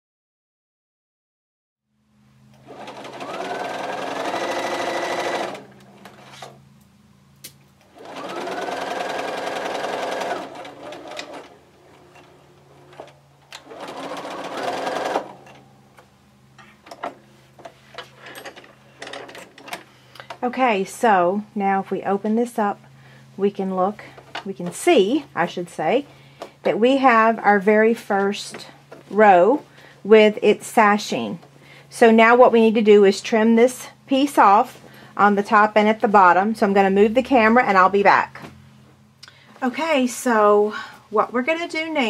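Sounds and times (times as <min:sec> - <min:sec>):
sewing machine stitching: 0:02.6 - 0:06.6, 0:07.8 - 0:15.6.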